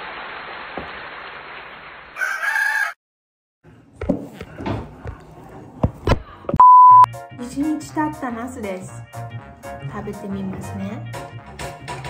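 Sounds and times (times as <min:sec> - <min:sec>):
rooster crowing: 0:02.2 - 0:03.0.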